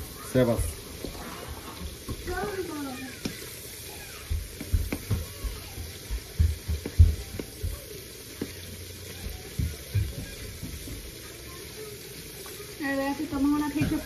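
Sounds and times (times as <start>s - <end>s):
shrimp sizzling in a frying pan: 0.0s - 14.0s
wooden spoon knocking on pan: 4.3s - 11.1s.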